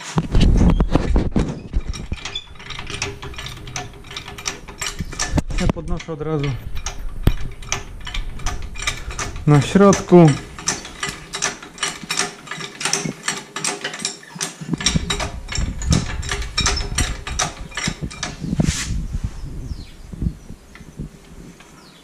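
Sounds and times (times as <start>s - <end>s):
heavy thuds and handling rumble: 0.0s - 13.2s, 14.7s - 21.7s
hydraulic jack pump clicking: 1.8s - 18.6s.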